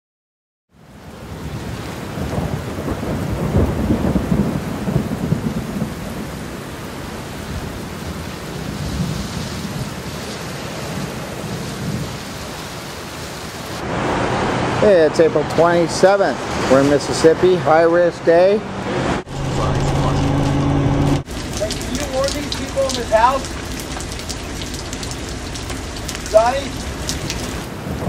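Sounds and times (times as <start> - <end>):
heavy rain: 0.7 - 28.0
rumbling thunder: 1.3 - 10.1, 19.2 - 28.0.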